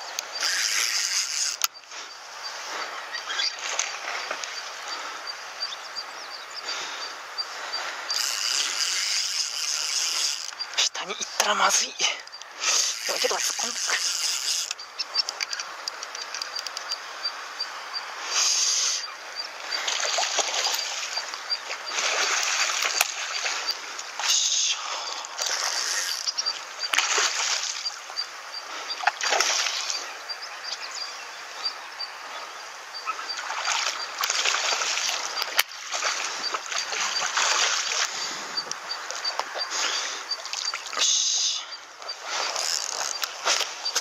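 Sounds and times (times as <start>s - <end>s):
fish splashing at water surface: 21.9s - 24.4s, 27.0s - 28.0s, 33.4s - 38.2s.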